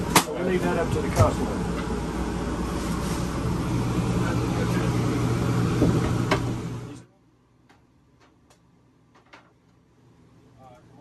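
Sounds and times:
mechanical hum with rushing: 0.0s - 7.0s.

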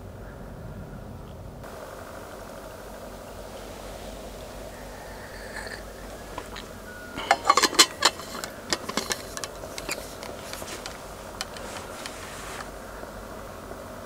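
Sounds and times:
steady low hum: 0.0s - 14.0s
sharp clicks and knocks: 6.4s - 12.7s.

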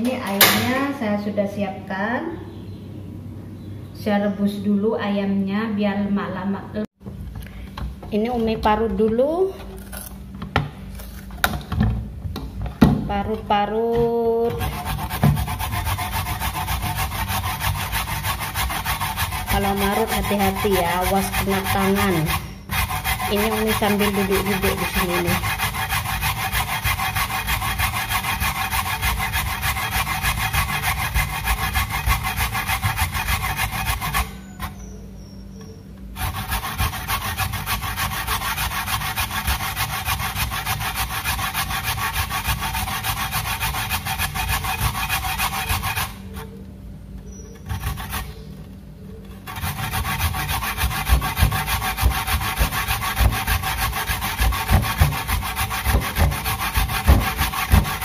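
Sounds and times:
coconut scraping on metal grater: 9.7s - 10.2s, 14.0s - 35.0s, 36.2s - 46.6s, 47.5s - 48.6s, 49.2s - 58.0s.

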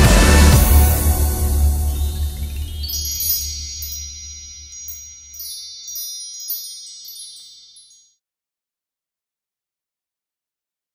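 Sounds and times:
tinkling wind chimes: 0.9s - 8.2s.

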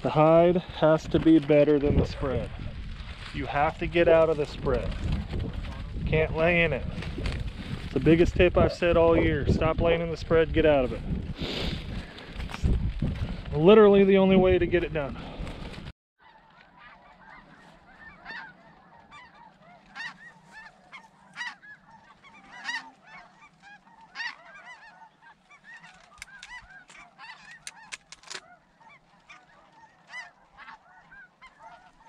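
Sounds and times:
geese yelping calls: 16.2s - 32.0s.

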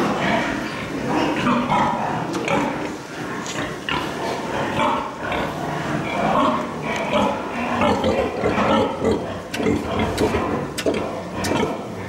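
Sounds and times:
pigs grunting and squealing: 0.0s - 12.0s.

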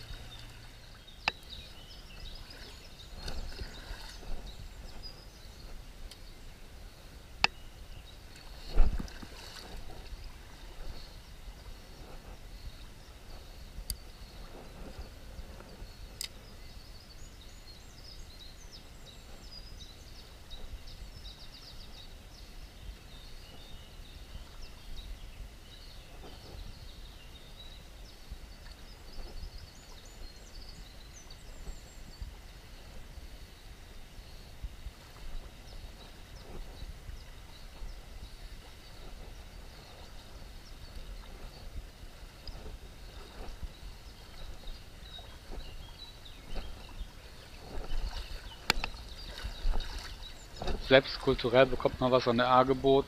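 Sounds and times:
stream flowing: 0.0s - 17.4s, 30.7s - 53.0s
songbirds chirping: 0.0s - 53.0s.

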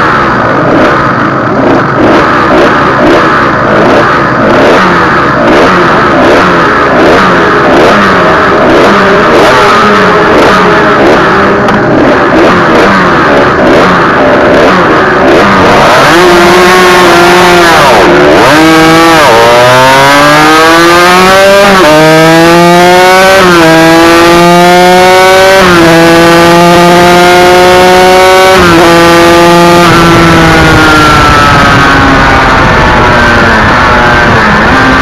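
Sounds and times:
two-stroke motorcycle engine revving: 0.0s - 35.0s.

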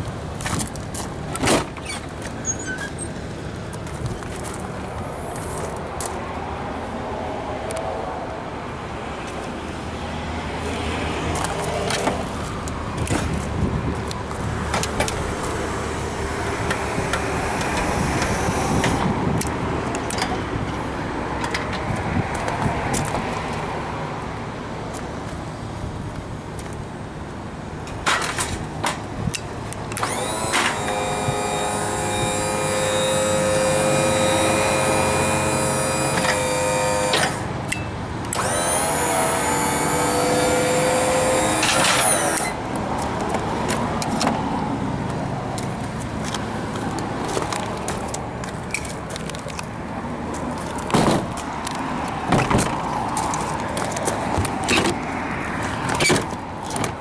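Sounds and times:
pump motor whine: 14.2s - 19.2s, 30.0s - 37.6s, 38.3s - 42.7s.

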